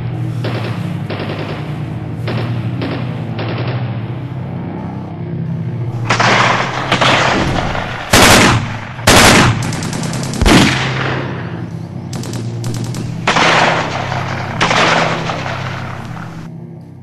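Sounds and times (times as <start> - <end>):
low steady hum: 0.0 - 17.0
gunfire: 0.3 - 4.1, 6.0 - 16.5
loud booming blasts: 5.9 - 16.5
machine-gun rattles: 9.1 - 10.5, 12.1 - 16.4.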